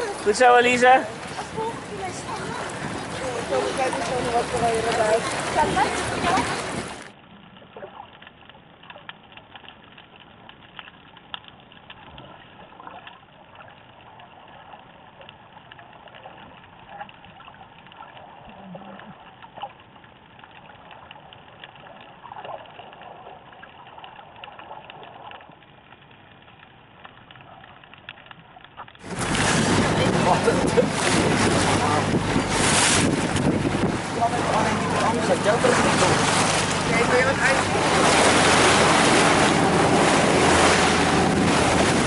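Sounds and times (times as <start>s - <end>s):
small clicks and crackles: 7.0s - 29.1s.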